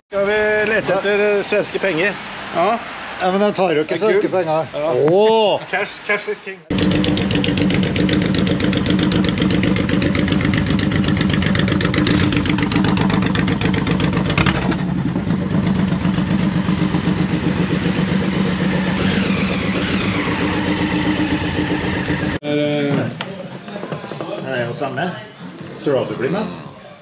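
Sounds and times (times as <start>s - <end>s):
motorcycle engines idling: 6.7s - 22.4s.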